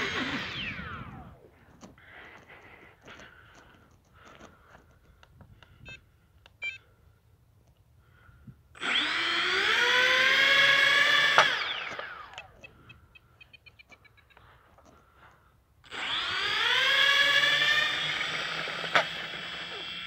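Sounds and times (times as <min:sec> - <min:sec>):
model plane motors whining: 0:00.0 - 0:05.0, 0:08.7 - 0:13.4, 0:15.8 - 0:20.0.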